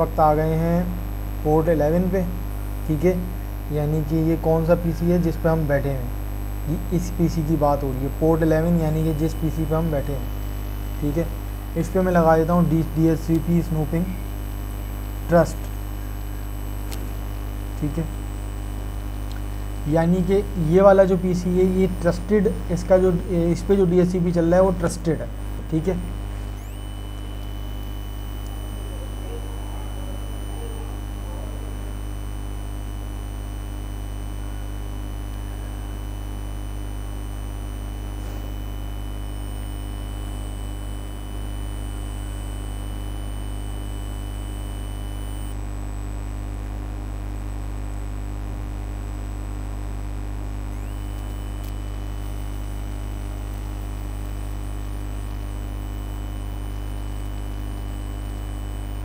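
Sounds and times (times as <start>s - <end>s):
faint high-pitched whine: 0.0s - 45.6s
low electrical mains hum: 0.0s - 59.0s.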